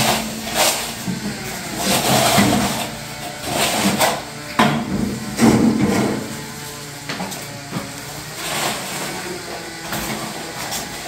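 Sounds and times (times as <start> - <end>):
shovel scraping cement mix: 0.0 - 11.0.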